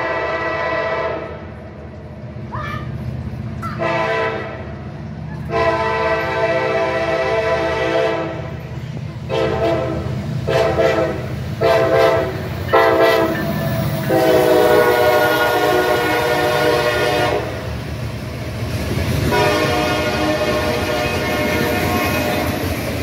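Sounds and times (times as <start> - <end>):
locomotive horn blasts: 0.0 - 1.4, 3.8 - 4.7, 5.5 - 8.6, 9.3 - 17.6, 19.2 - 22.7
passing train rumble and clatter: 0.0 - 23.0.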